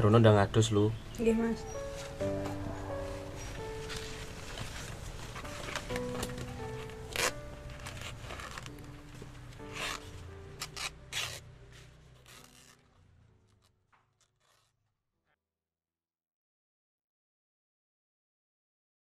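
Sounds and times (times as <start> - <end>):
soft background music: 0.0 - 14.7
blade cutting banana leaf: 6.6 - 8.9, 9.6 - 11.5, 12.2 - 12.8.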